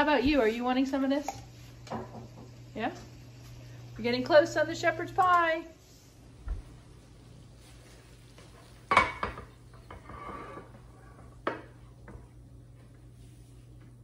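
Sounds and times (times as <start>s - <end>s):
spatula scraping frying pan: 9.8s - 11.1s.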